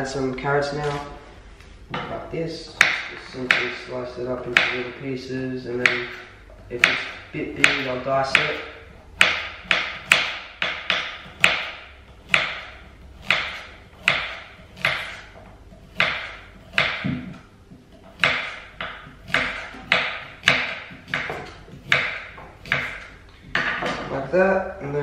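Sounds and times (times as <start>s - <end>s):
knife slicing carrot on board: 12.3s - 17.2s, 18.2s - 23.1s.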